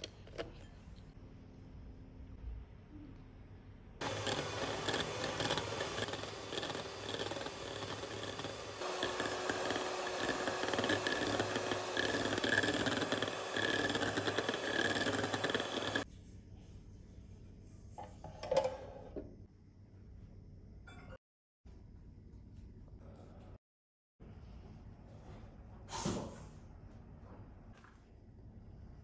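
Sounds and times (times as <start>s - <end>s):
electric hand mixer whirring: 4.0s - 16.1s.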